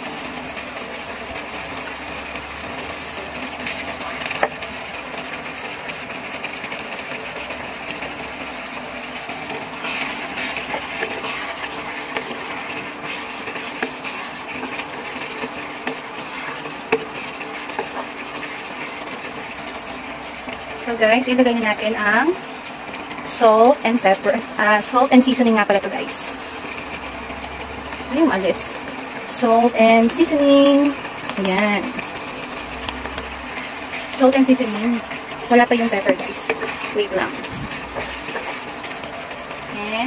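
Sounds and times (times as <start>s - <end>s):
stew bubbling: 0.0s - 40.0s
wooden spatula stirring: 0.0s - 40.0s
spatula clicking against pan: 32.8s - 33.3s.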